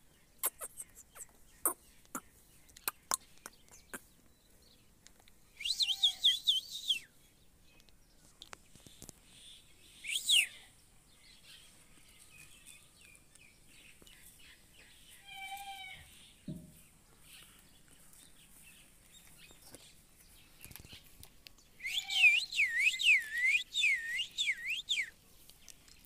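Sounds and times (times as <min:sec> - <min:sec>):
parakeet chattering chirps: 0:00.4 - 0:02.2.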